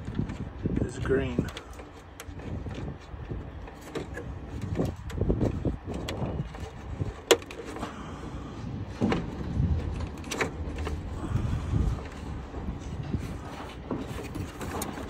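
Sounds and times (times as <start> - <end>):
low rumble: 7.8 - 15.0.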